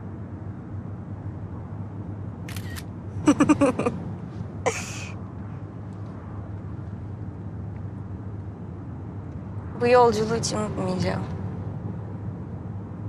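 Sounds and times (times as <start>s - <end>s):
person laughing: 3.2s - 3.9s, 4.7s - 5.1s
car cabin hum: 3.2s - 4.0s.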